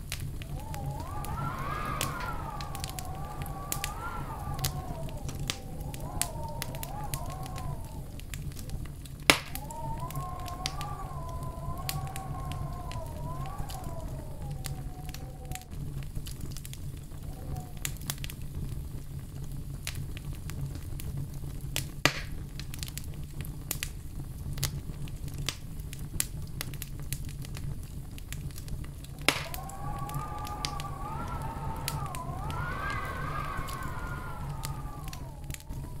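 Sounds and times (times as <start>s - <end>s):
sharp pops from fire: 0.0s - 13.6s, 19.8s - 24.0s, 24.6s - 35.9s
fire crackling: 0.0s - 36.0s
thin whistling tone: 0.4s - 8.2s, 9.4s - 15.5s, 29.1s - 36.0s.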